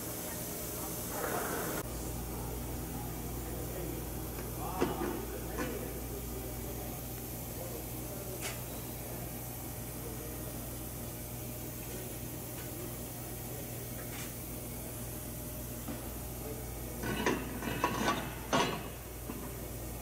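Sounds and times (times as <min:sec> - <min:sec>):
low machinery hum: 0:00.0 - 0:20.0.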